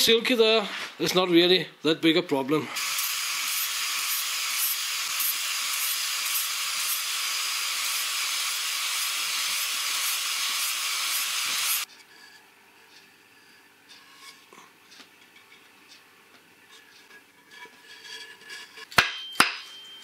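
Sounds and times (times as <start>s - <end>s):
angle grinder sanding wood: 2.8s - 11.9s.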